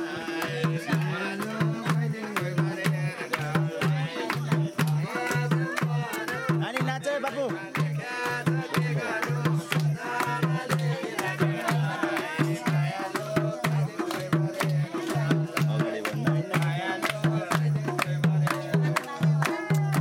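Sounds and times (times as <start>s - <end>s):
hand claps: 0.0s - 20.0s
voices singing: 0.0s - 20.0s
hand drum beating: 7.6s - 20.0s.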